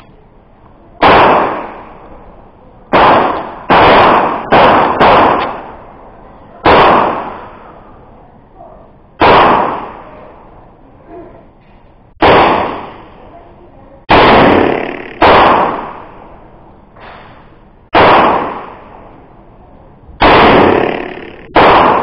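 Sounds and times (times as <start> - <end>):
pistol shots echoing: 1.0 - 2.1, 2.9 - 5.9, 6.6 - 7.8, 9.2 - 10.3, 12.2 - 13.2, 14.1 - 16.4, 17.9 - 19.1, 20.2 - 22.0.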